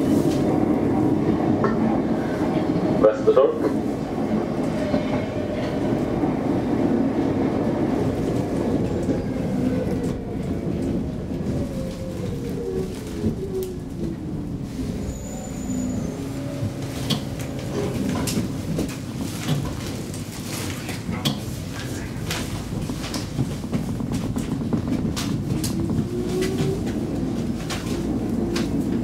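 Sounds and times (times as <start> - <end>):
train rumble and wheel clatter: 0.0 - 29.0.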